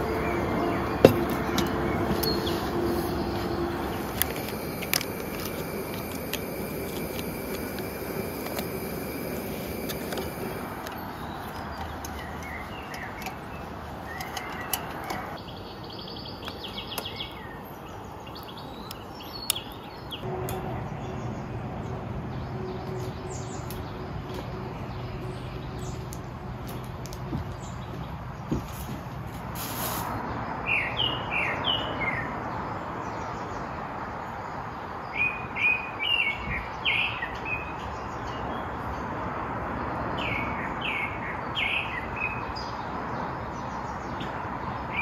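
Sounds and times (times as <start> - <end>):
steady rushing background: 0.0 - 13.3
small birds chirping: 0.0 - 29.3.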